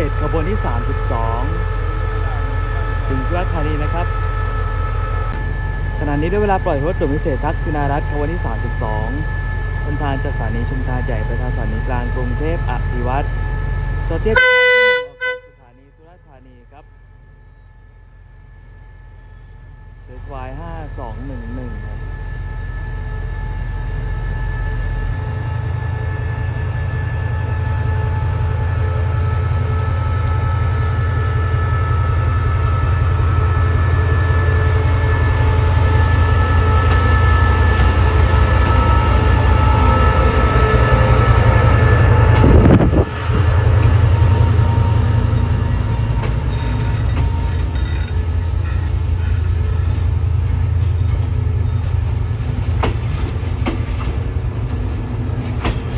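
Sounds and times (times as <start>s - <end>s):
locomotive rumble with high tones: 0.0s - 55.9s.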